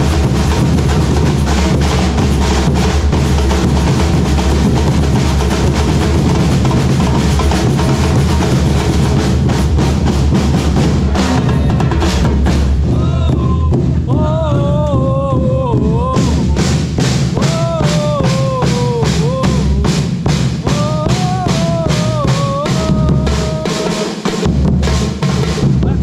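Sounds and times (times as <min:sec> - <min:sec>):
bass drums struck with mallets: 0:00.0 - 0:23.3
samba drumming: 0:00.0 - 0:26.0
person shouting: 0:11.2 - 0:12.1, 0:12.9 - 0:16.8, 0:17.4 - 0:20.1, 0:20.7 - 0:23.9.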